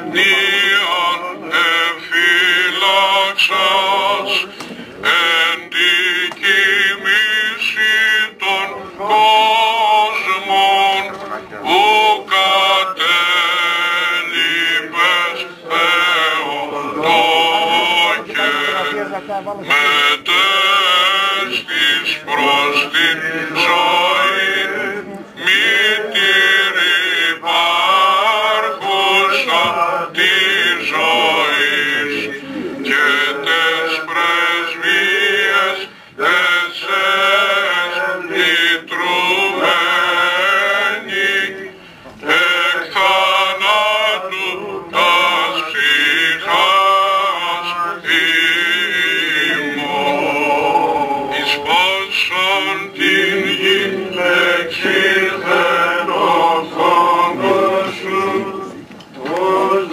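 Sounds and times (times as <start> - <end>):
men singing a chant: 0.0 - 59.9.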